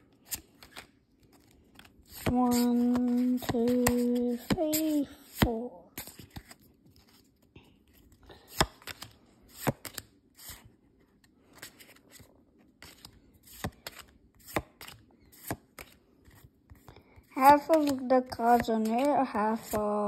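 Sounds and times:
cards sliding and rustling: 0:00.1 - 0:19.8
cards snapping: 0:08.5 - 0:10.6, 0:12.8 - 0:16.0.

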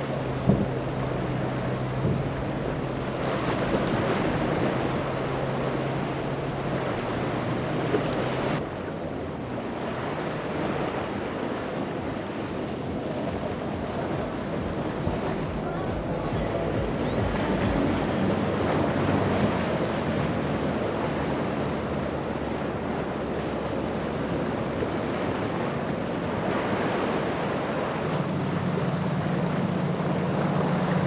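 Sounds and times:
boat engine drone: 0:00.0 - 0:31.0
water rushing from hull spray: 0:00.0 - 0:31.0
wind on microphone: 0:10.4 - 0:31.0.

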